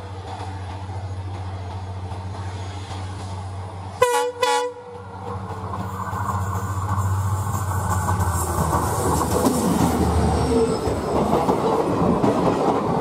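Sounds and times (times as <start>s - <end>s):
diesel locomotive engine running: 0.0s - 13.0s
train wheels rumbling on track: 0.0s - 13.0s
train horn blasts: 4.0s - 5.0s.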